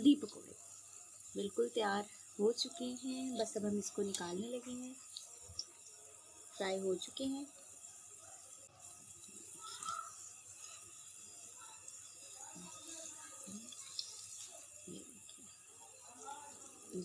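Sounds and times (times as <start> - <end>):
hot oil sizzling: 0.0 - 17.0.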